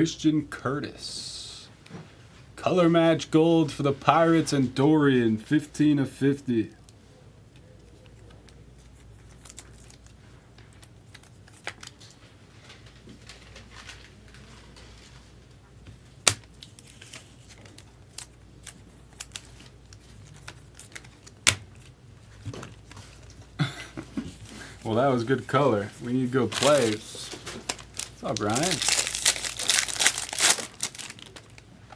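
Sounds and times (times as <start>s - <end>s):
card wrappers crinkling and rustling: 7.8s - 15.4s, 16.2s - 23.5s, 24.4s - 31.9s.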